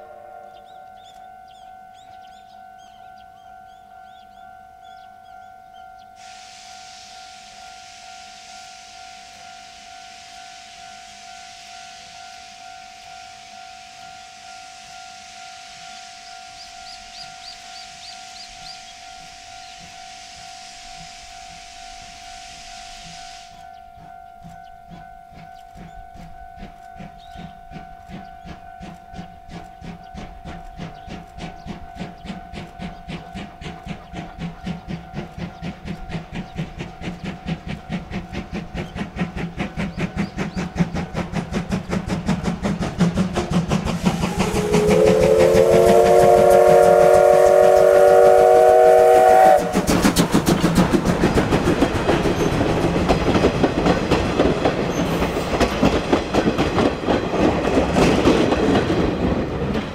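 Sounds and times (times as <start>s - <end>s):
steam whistle: 0.0s - 5.5s, 6.2s - 24.8s, 43.8s - 52.6s
steam locomotive exhaust chuffs: 0.0s - 59.9s
locomotive running gear: 23.7s - 59.9s.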